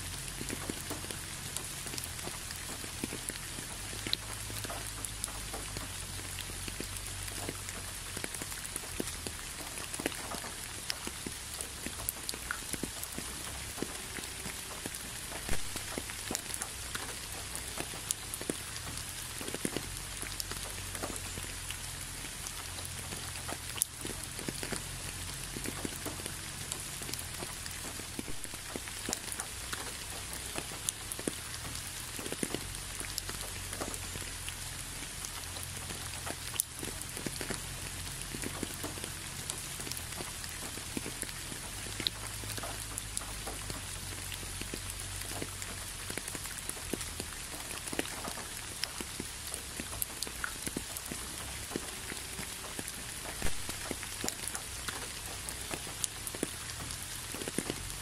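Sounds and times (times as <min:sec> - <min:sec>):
rain hiss: 0:00.0 - 0:58.0
raindrops tapping: 0:00.0 - 0:58.0.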